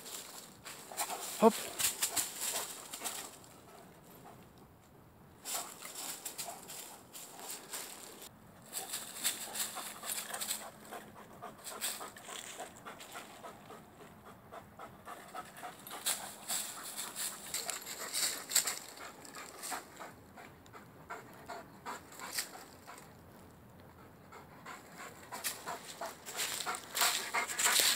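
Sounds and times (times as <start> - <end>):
dry leaves crunching underfoot: 0.0 - 3.4, 5.4 - 10.6, 16.0 - 19.7, 25.5 - 27.9
dog panting: 0.2 - 4.5, 5.5 - 8.1, 8.7 - 27.9.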